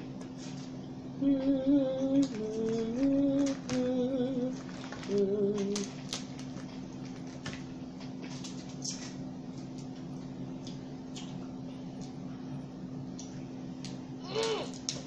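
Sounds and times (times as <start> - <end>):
low background hum: 0.0 - 15.0
woman humming: 1.2 - 5.9
crab legs cracking: 4.6 - 9.2.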